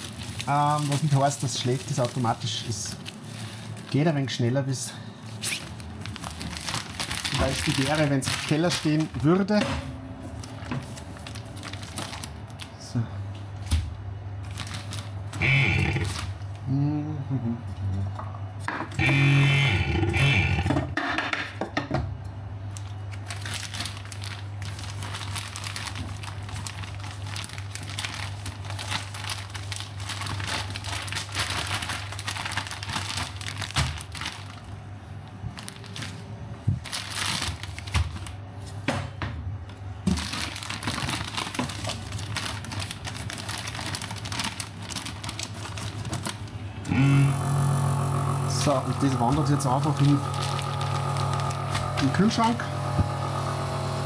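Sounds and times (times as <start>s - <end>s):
plastic crinkling: 0.0s - 4.4s, 5.2s - 9.6s, 10.2s - 13.7s, 14.4s - 16.6s, 22.6s - 38.8s, 40.0s - 46.9s, 48.5s - 53.7s
steady low hum: 0.0s - 21.0s.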